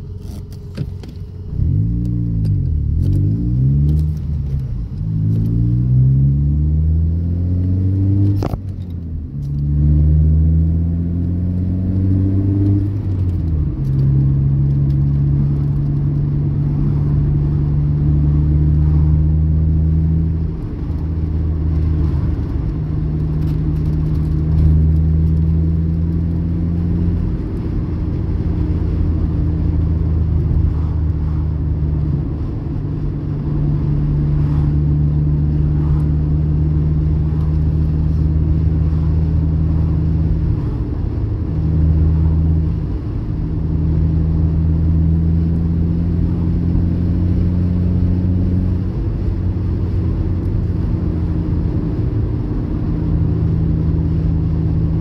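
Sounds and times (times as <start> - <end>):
car engine under throttle: 0.0 - 55.0.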